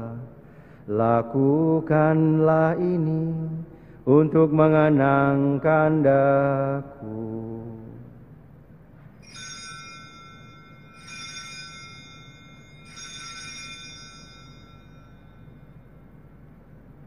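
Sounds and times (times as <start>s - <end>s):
altar bells ringing: 9.2s - 16.5s.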